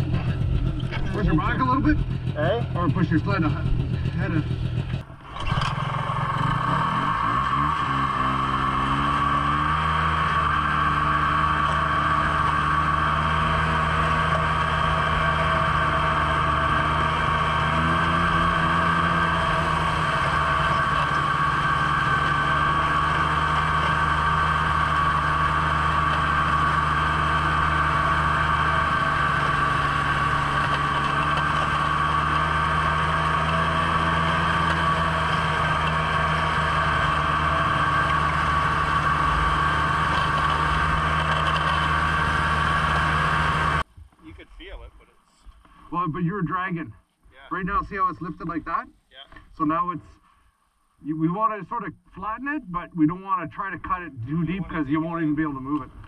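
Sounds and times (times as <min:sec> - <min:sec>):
snowmobile engine running: 0:00.0 - 0:43.9.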